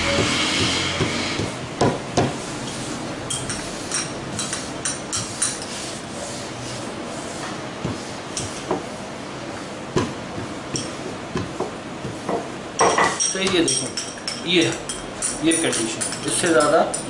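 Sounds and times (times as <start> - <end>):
rolling pin rolling on dough: 0.0 - 12.5.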